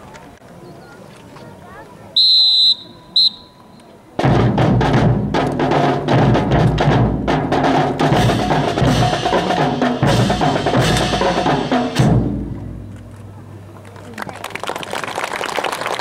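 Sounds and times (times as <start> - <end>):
whistle blast: 2.2 - 3.8
music with heavy drums: 4.2 - 12.9.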